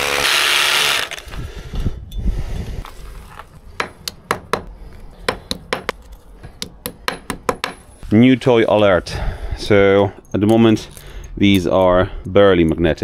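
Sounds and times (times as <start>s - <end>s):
hammer drill boring into stone: 0.0s - 1.3s.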